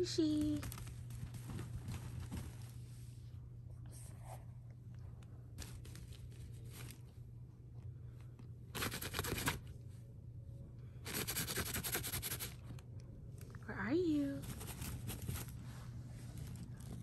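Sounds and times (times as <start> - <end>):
steady low hum: 0.0 - 17.0
fabric rustling: 0.4 - 3.2.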